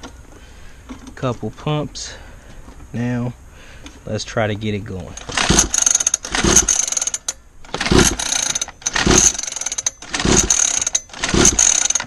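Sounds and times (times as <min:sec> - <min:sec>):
recoil starter pull and engine cranking: 0:05.1 - 0:12.0.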